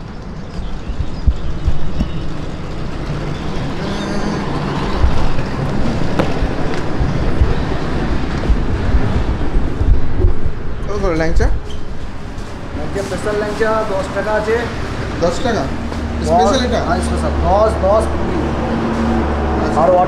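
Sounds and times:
rumble of passing vehicles: 0.0s - 20.0s.

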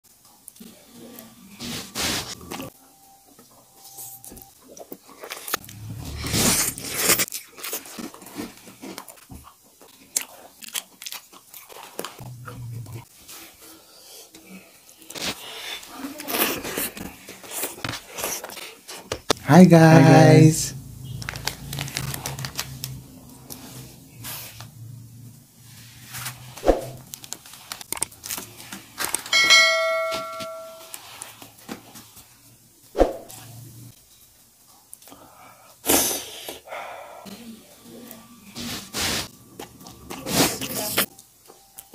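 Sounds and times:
crunchy chewing of cookies: 4.5s - 19.2s, 20.8s - 24.8s, 38.5s - 41.9s
people slurping noodles: 5.5s - 9.0s, 35.8s - 41.1s
plastic packet crinkling: 21.2s - 23.0s
bell-like chime: 29.3s - 31.0s.

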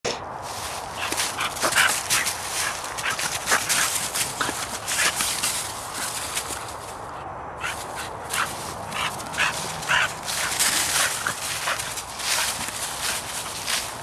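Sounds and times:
dry leaves crackling underfoot: 0.4s - 14.0s
dog barking: 8.4s - 11.8s.

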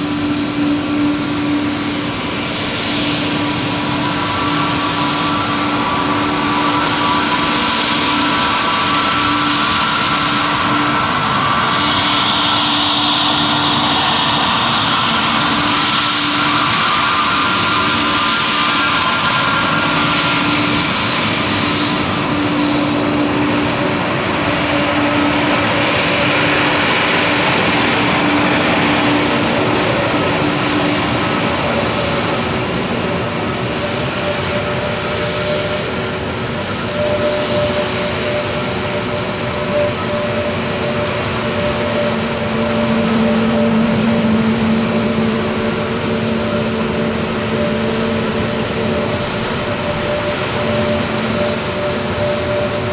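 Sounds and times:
jet engines at taxi power: 0.0s - 52.9s.

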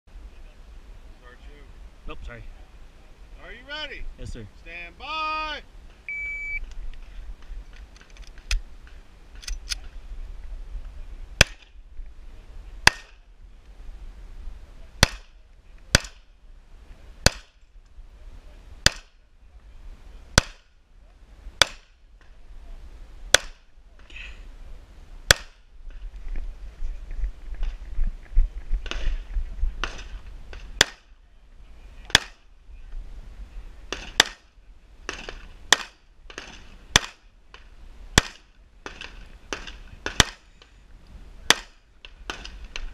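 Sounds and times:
shot timer beep: 6.1s - 6.6s
pistol shots: 15.0s - 15.3s, 32.1s - 32.4s, 33.9s - 34.5s, 35.1s - 37.2s, 38.2s - 40.4s.

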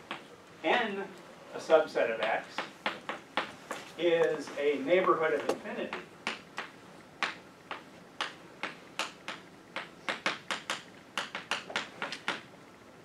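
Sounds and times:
chalk tapping and scraping on blackboard: 2.2s - 12.4s.

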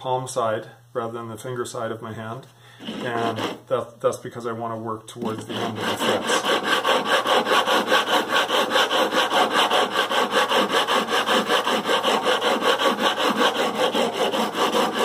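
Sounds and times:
sanding block rasping on metal frets: 2.8s - 3.6s, 5.4s - 15.0s.

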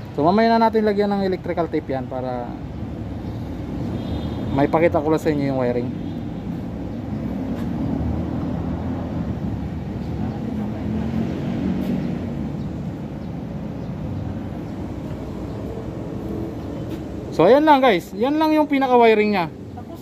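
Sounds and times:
vehicle engine rumbling: 4.9s - 18.8s.

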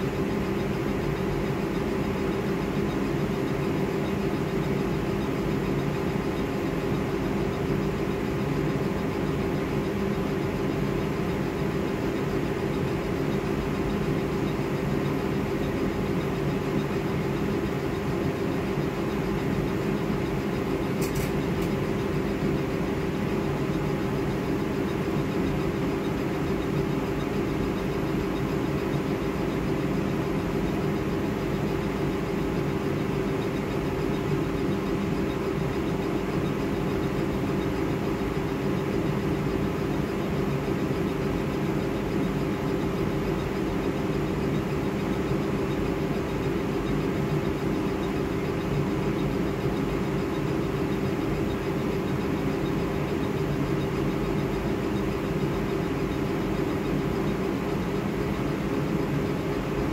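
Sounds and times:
laser engraver whirring: 0.0s - 59.9s.

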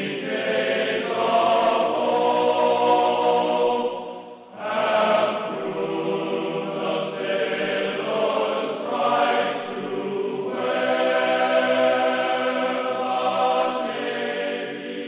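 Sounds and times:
choir singing held notes: 0.0s - 15.0s.

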